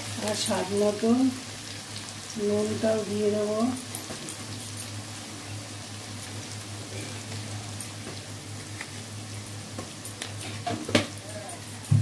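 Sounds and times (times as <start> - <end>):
spices sizzling in hot oil: 0.0 - 12.0.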